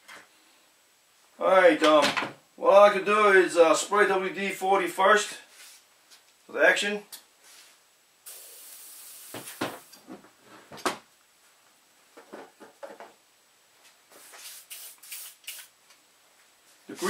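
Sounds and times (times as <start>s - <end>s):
aerosol can spraying: 8.3s - 9.9s, 14.1s - 15.7s.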